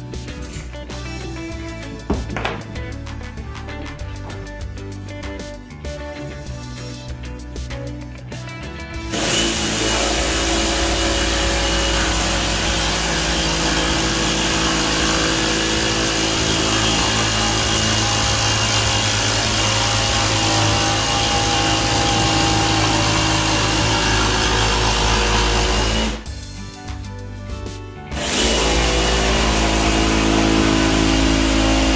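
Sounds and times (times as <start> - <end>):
jigsaw cutting particleboard: 9.1 - 26.2, 28.2 - 31.9.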